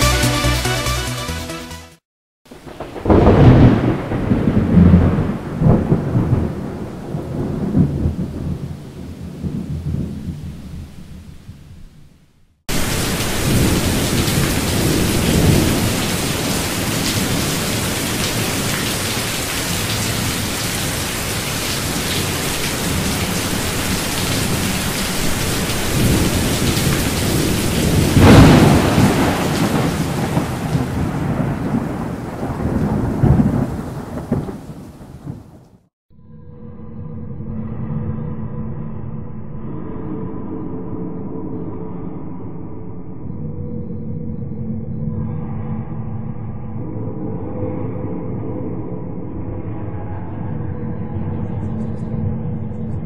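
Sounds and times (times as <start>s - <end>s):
heavy rain: 2.5s - 11.7s, 12.7s - 35.8s
rolls of thunder: 2.6s - 11.9s, 12.7s - 35.8s.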